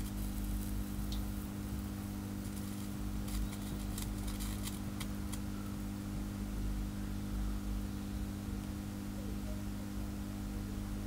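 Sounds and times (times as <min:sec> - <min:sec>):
electrical crackling and popping: 0:00.0 - 0:05.8
steady low hum: 0:00.0 - 0:11.0.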